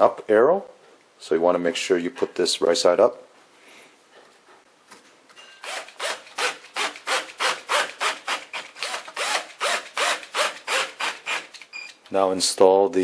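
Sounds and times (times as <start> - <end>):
drill driving screw squeaking: 5.6 - 12.0.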